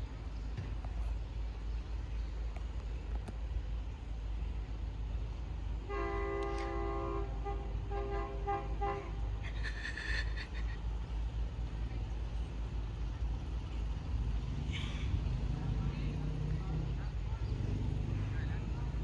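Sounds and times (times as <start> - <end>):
locomotive horn blasts: 5.8 - 9.3.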